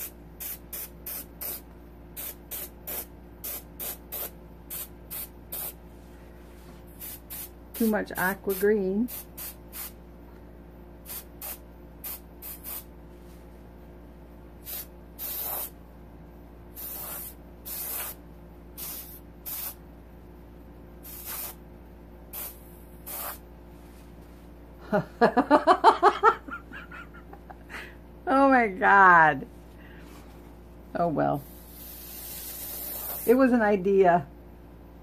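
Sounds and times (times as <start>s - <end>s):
airbrush hisses of air: 2.2s - 5.8s, 6.9s - 7.9s, 8.5s - 10.0s, 11.0s - 12.9s, 14.6s - 15.7s, 16.8s - 18.2s, 18.8s - 19.8s, 21.0s - 21.6s, 22.3s - 23.4s, 31.4s - 33.4s.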